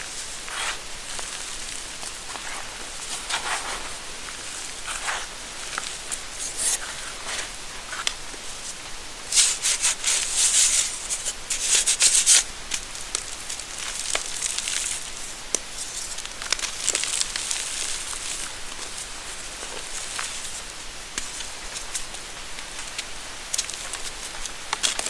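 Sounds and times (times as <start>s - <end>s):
chalk lumps crunching: 0.0s - 12.5s.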